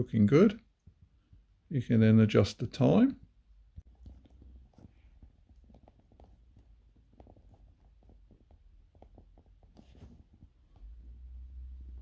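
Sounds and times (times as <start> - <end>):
handling brush: 2.8 - 11.4.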